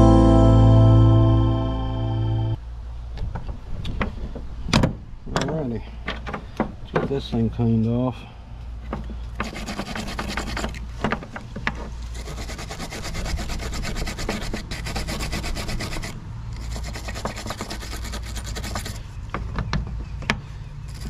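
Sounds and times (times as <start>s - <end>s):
wire brush scrubbing metal: 9.4s - 10.8s, 12.1s - 19.0s.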